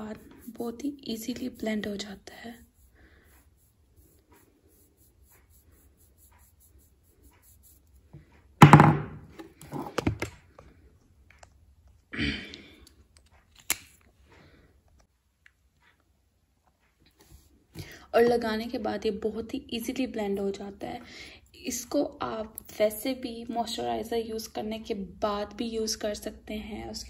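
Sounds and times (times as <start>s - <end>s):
loud thud: 8.6s - 9.3s.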